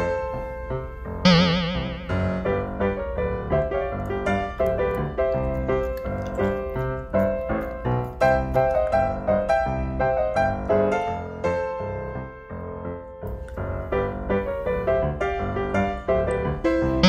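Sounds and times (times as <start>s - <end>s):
piano music: 0.0s - 17.0s
loud warbling sound: 1.3s - 2.8s.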